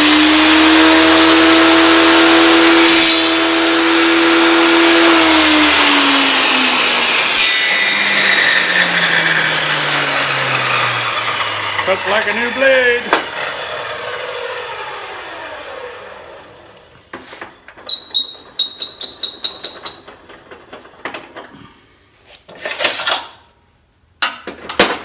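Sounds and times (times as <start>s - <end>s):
table saw winding down: 0.0s - 17.1s, 17.8s - 20.4s.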